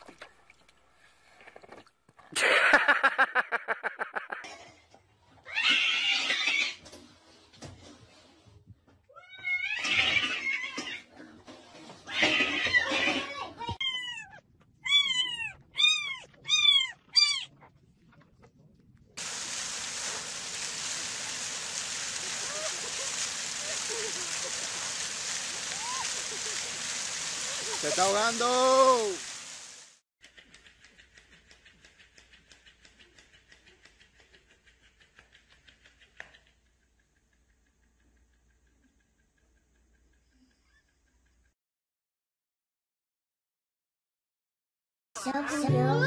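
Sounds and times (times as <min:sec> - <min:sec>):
splashing water hiss: 0:19.2 - 0:30.0.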